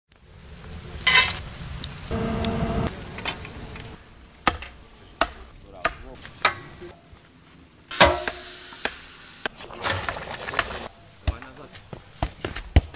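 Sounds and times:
steady hum: 2.1s - 4.0s
hammer striking iron on anvil: 4.5s - 6.7s, 7.9s - 9.0s
metal clank: 7.9s - 8.4s.

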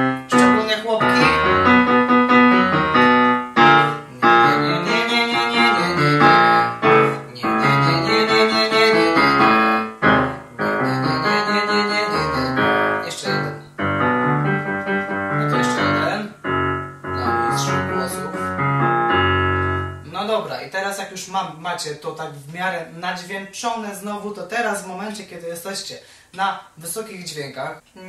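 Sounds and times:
digital piano chords: 0.0s - 20.6s.

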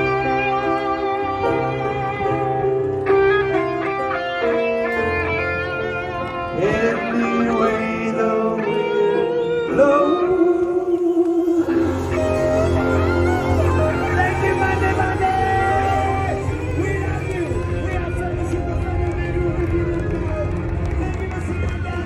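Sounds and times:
live band guitar music: 0.0s - 22.0s
person singing: 6.3s - 18.1s.

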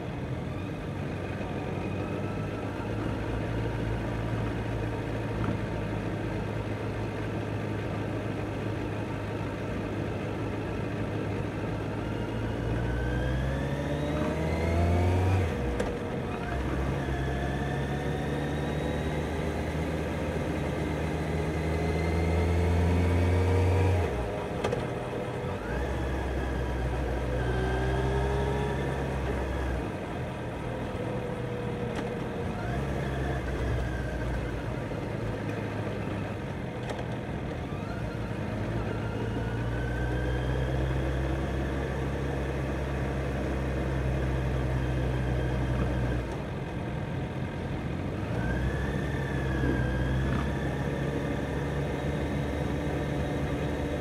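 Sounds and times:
motorcycle engine accelerating: 12.0s - 46.6s, 48.2s - 54.0s.

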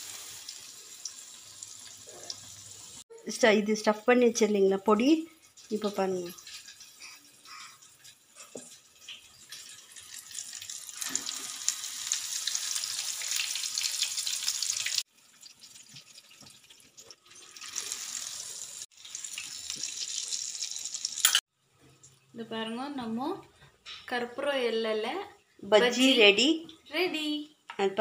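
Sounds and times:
deep-frying sizzle in oil: 0.0s - 3.0s, 3.6s - 21.4s.

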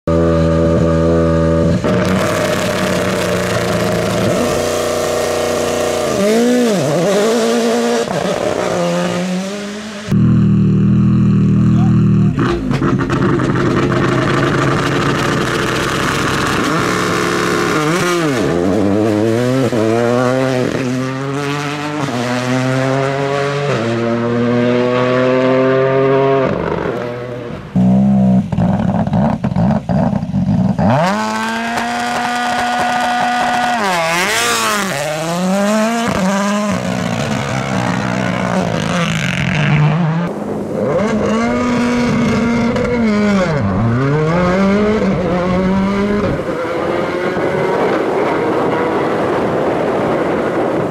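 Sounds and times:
rally car engines launching: 0.2s - 50.9s
rough crackling engine: 1.8s - 6.2s, 10.1s - 19.8s, 27.7s - 50.9s.

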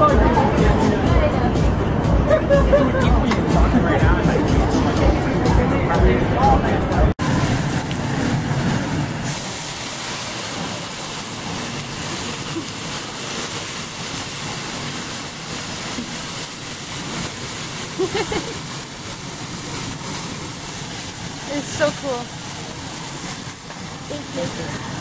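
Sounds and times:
food sizzling on a griddle: 7.2s - 25.0s.

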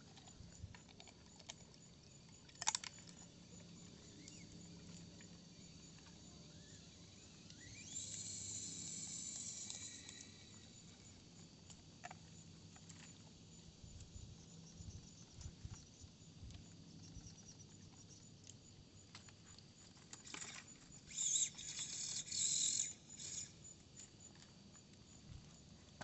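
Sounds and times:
hissy scrabbling bursts: 20.2s - 23.6s.

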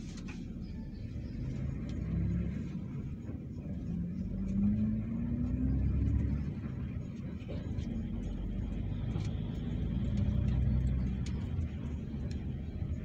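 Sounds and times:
vehicle engine drone: 0.0s - 13.0s.

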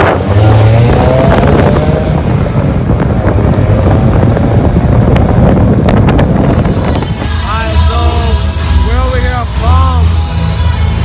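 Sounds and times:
wind buffeting microphone: 0.0s - 8.3s
road and engine rumble: 0.0s - 11.0s.

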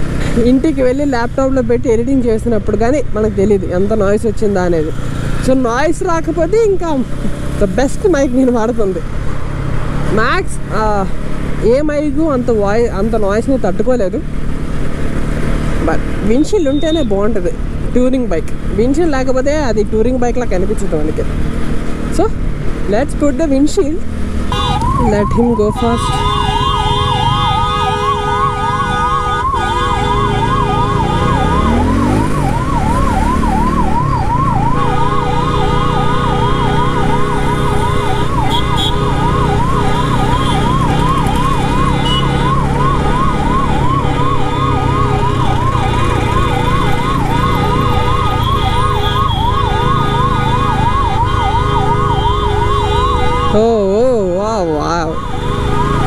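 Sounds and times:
wind and road noise: 0.0s - 56.0s
ambulance siren warbling: 15.8s - 18.1s, 24.5s - 56.0s.

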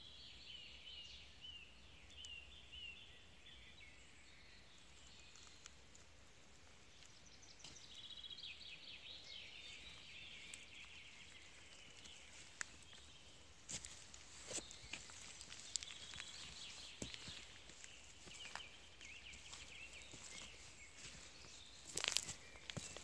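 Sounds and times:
footsteps on forest ground: 4.8s - 23.0s
twigs crunching and snapping: 13.7s - 21.2s, 21.8s - 23.0s.

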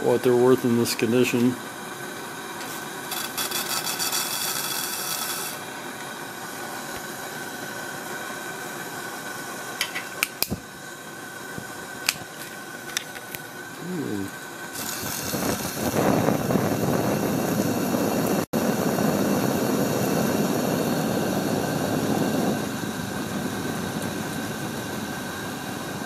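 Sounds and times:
pressure lantern hissing: 0.0s - 26.0s
scratchy rubbing: 3.1s - 5.6s.

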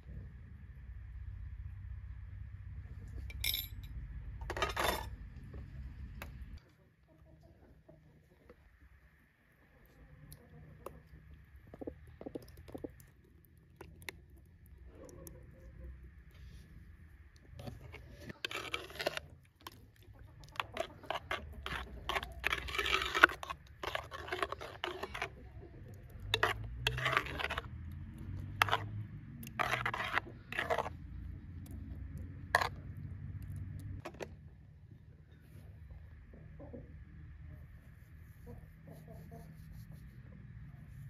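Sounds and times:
spoon scraping yogurt in clay pot: 10.3s - 16.7s, 17.4s - 34.4s.

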